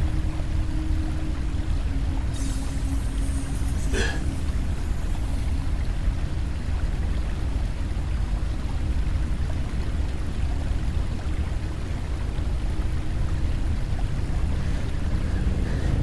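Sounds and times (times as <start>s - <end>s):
watery hiss: 2.3s - 5.8s.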